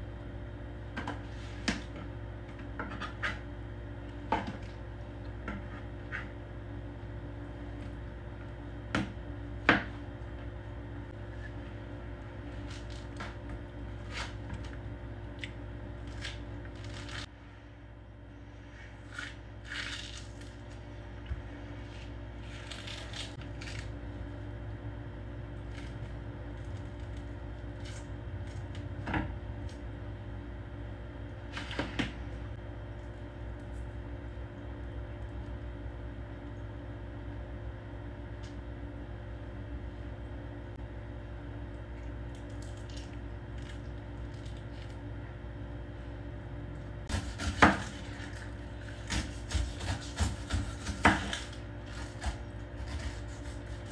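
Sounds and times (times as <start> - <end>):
steady low hum: 0.0 - 53.9
citrus peel tearing and rustling: 12.4 - 17.3, 19.0 - 20.9, 21.7 - 24.4, 25.6 - 29.0, 42.2 - 45.1, 47.1 - 53.9.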